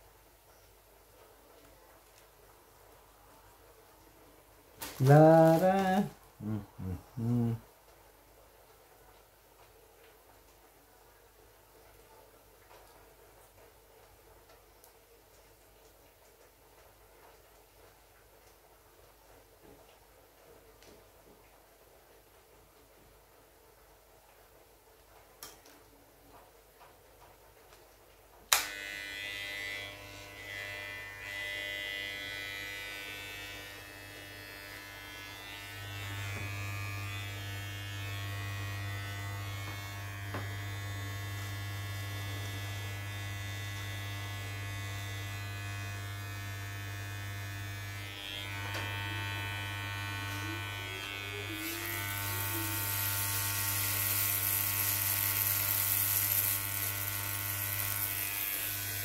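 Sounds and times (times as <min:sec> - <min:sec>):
electric hair clipper buzzing: 0:04.8 - 0:06.6, 0:28.5 - 0:59.0
hair clipper switch click: 0:28.5 - 0:29.0.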